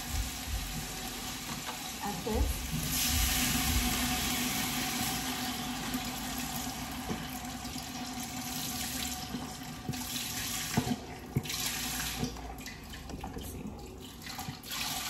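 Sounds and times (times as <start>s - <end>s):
liquid pouring into a pot: 0.0s - 15.0s.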